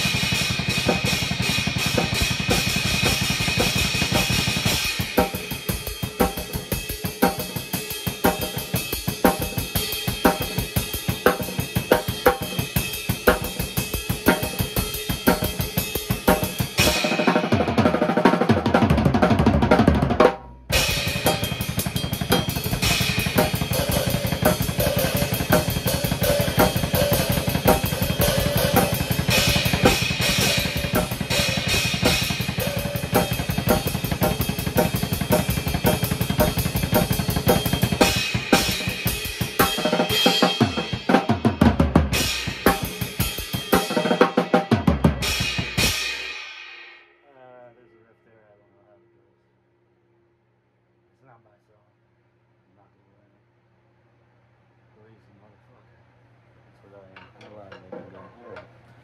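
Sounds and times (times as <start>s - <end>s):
drum kit played with sticks: 0.0s - 47.3s.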